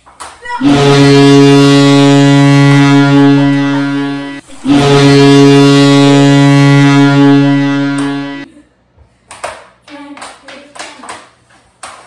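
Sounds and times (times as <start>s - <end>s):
hockey goal horn blasts: 0.5s - 8.5s.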